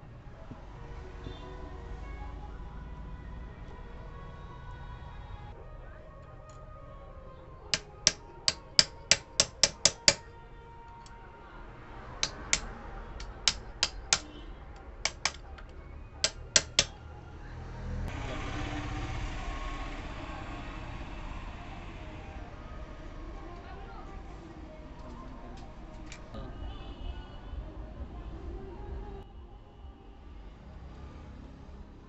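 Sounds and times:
ratchet wrench clicking: 0:07.8 - 0:10.2, 0:15.1 - 0:15.4, 0:16.2 - 0:16.9.

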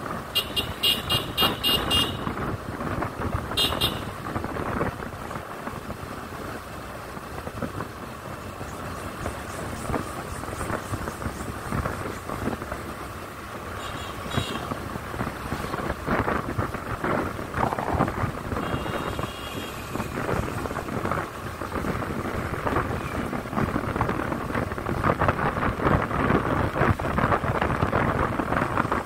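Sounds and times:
motorcycle engine: 0:00.0 - 0:28.6
wind on microphone: 0:08.6 - 0:12.9, 0:14.3 - 0:29.0.

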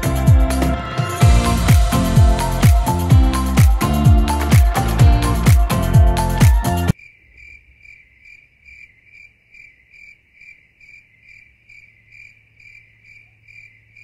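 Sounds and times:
cricket chirping: 0:06.9 - 0:14.0.

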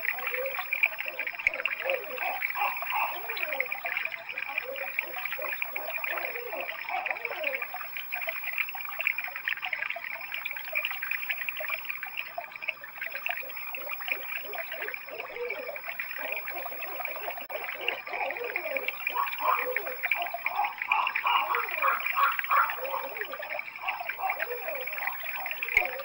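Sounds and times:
owls hooting: 0:00.0 - 0:03.8, 0:04.4 - 0:07.7, 0:13.8 - 0:26.0.

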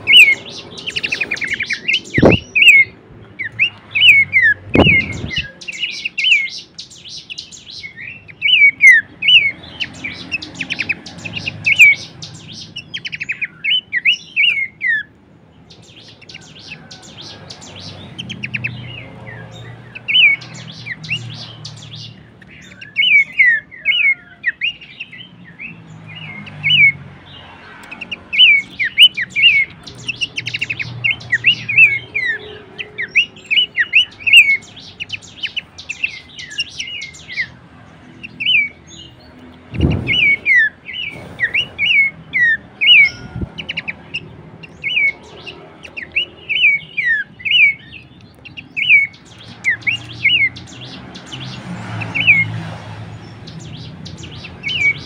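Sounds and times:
bird singing chattering whistles: 0:00.0 - 0:15.1, 0:27.9 - 0:37.5, 0:39.7 - 0:52.5.

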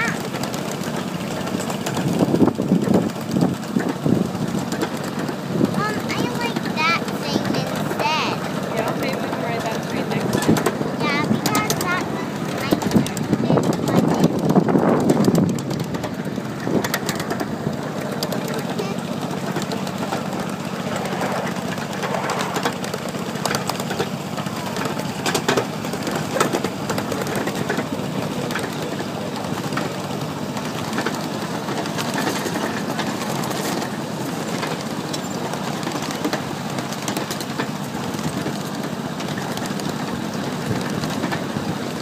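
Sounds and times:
miniature train humming: 0:00.0 - 0:42.0
train cars clattering over rails: 0:00.0 - 0:42.0.

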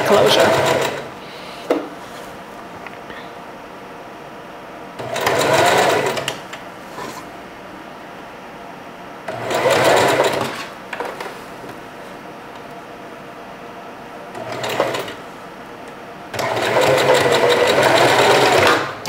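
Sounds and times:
sewing machine stitching: 0:00.0 - 0:01.1, 0:05.0 - 0:06.4, 0:09.3 - 0:10.7, 0:14.4 - 0:15.2, 0:16.4 - 0:18.9.

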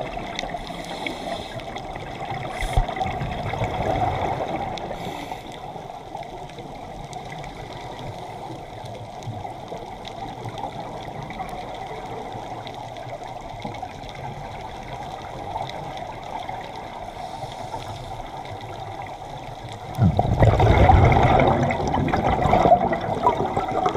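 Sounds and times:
scuba regulator bubbles rushing: 0:00.0 - 0:05.3, 0:18.6 - 0:23.9
underwater water hiss: 0:00.0 - 0:06.0, 0:16.0 - 0:19.0.

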